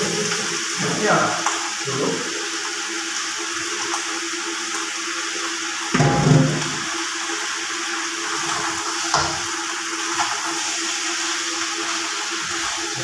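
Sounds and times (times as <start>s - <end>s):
water running from tap: 0.0s - 13.0s.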